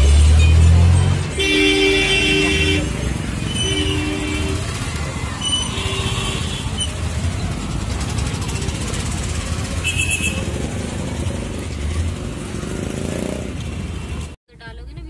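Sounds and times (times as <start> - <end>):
motorcycle engines rumbling: 0.0 - 15.0
vehicle horns honking: 0.4 - 7.2, 9.7 - 10.8.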